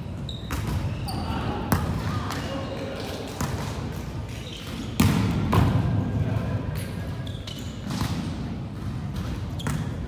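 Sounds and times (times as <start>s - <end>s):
shoe squeak on court floor: 0.2s - 1.4s, 4.4s - 5.0s, 7.2s - 8.0s.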